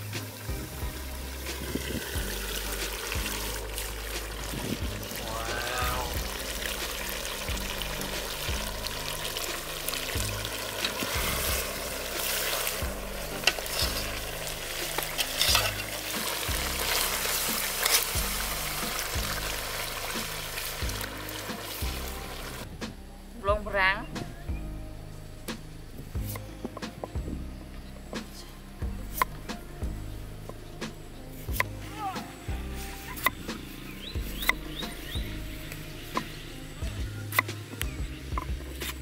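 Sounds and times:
curry bubbling and sizzling: 0.0 - 22.7
background music with bass: 0.0 - 39.0.

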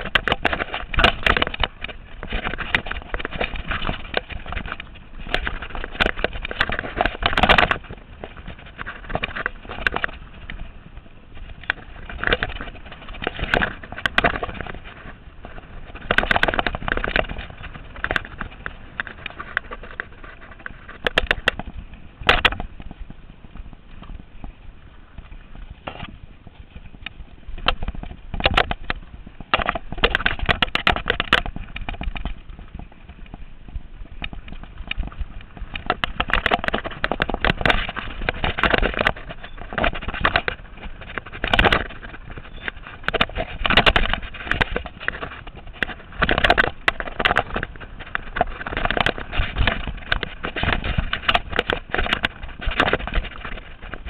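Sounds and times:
bike tyres rumbling on dirt: 0.0 - 54.0.

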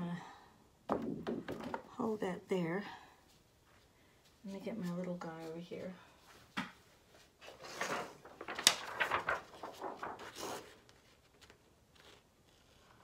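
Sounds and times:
objects knocking and scraping: 0.9 - 2.0.

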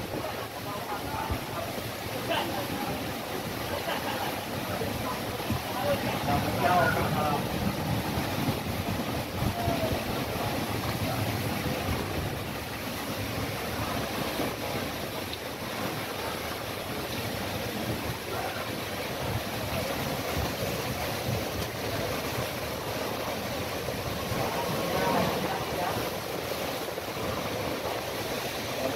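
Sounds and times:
heavy rain: 0.0 - 28.9
storm wind buffeting microphone: 0.0 - 28.9
water splashing against concrete: 0.0 - 28.9.

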